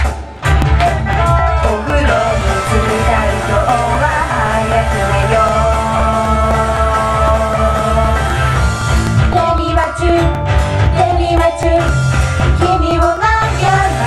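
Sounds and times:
backing track with heavy beat: 0.0s - 14.0s
women singing pop song: 0.7s - 8.6s, 9.2s - 14.0s.

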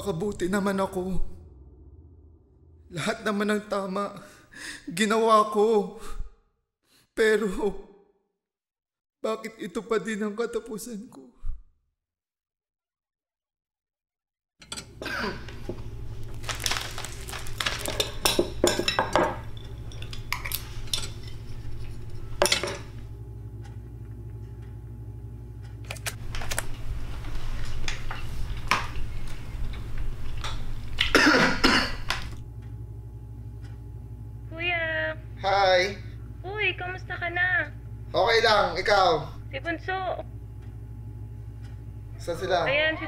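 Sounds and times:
steady low hum: 0.0s - 5.8s, 14.7s - 43.0s.

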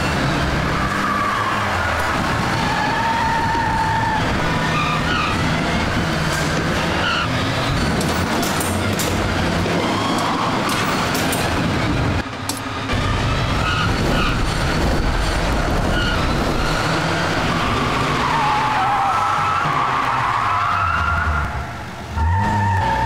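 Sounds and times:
car engines revving: 0.0s - 23.0s
tyres squealing on concrete: 0.6s - 5.6s, 15.9s - 23.0s.

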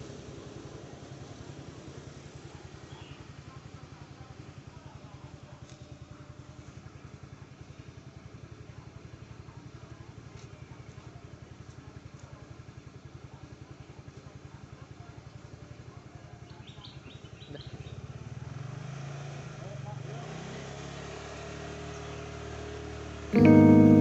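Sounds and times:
scooter engine idling: 0.0s - 18.7s.

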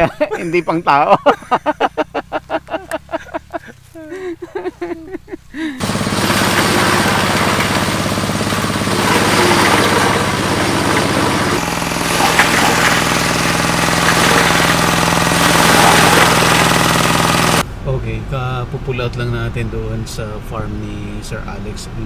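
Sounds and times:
diesel engine clatter: 0.0s - 3.9s, 4.6s - 22.0s
chopper rushing hiss: 5.8s - 17.6s.

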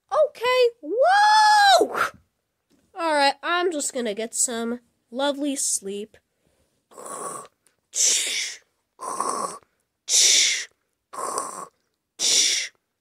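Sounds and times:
person imitating snoring: 6.9s - 12.8s.

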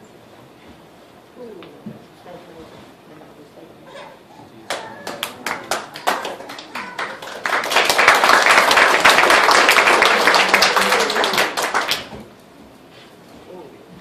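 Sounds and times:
crowd applause: 4.7s - 12.3s
hand claps: 4.7s - 12.3s.

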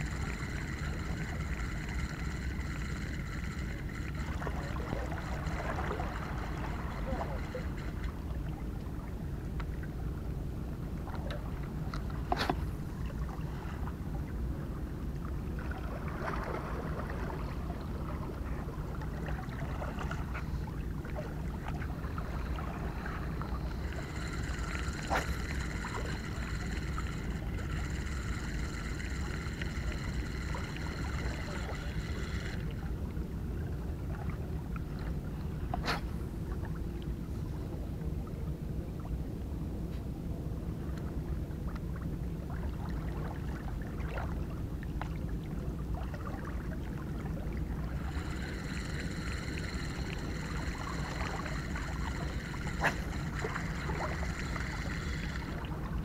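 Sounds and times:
water against rocks: 0.0s - 10.0s, 10.9s - 36.7s, 41.7s - 56.0s
high steady multi-tone whine: 0.0s - 39.6s, 44.5s - 56.0s
wind: 0.0s - 56.0s.

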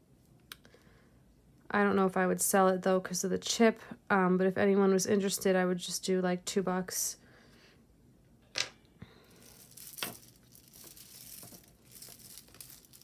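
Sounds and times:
soft crinkling: 9.2s - 13.0s.

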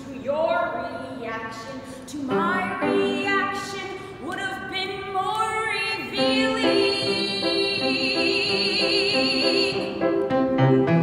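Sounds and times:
woman singing: 0.0s - 10.0s
piano accompaniment: 6.0s - 11.0s.

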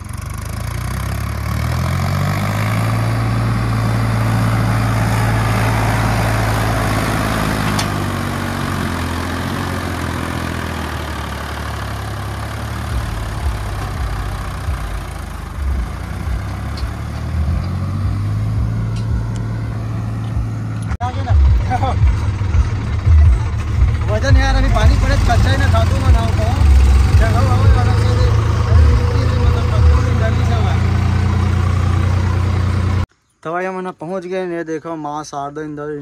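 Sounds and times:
tractor diesel engine working hard: 0.0s - 33.1s
low thumps: 12.9s - 30.0s.

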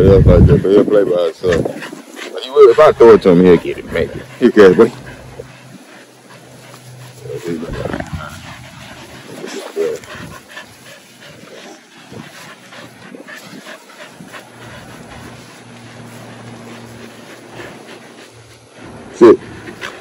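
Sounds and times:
dog vocalizing: 1.5s - 18.1s.

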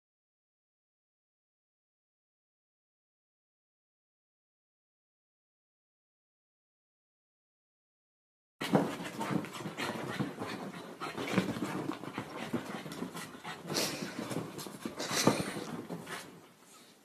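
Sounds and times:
dog scrambling over couch: 8.6s - 16.6s
small dog panting: 8.6s - 17.0s.

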